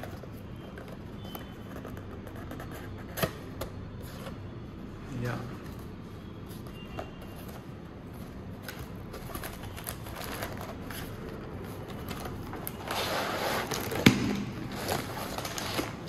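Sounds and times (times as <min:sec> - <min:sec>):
packaging rustling: 0:07.1 - 0:16.0.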